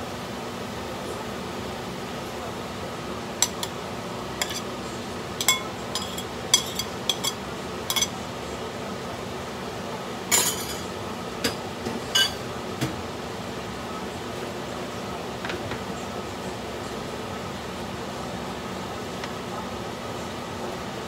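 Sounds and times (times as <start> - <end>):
plate and spoon clinking on wok: 3.4 - 3.8, 4.4 - 4.7, 5.4 - 8.2, 10.3 - 10.9, 12.2 - 12.4.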